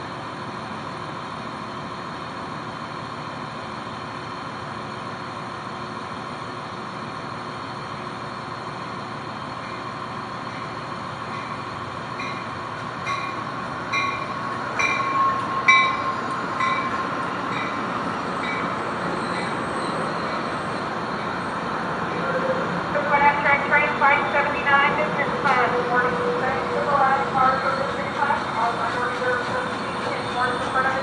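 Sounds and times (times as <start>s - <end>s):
train wheels on rail: 0.0s - 31.0s
bell ringing: 14.0s - 17.0s.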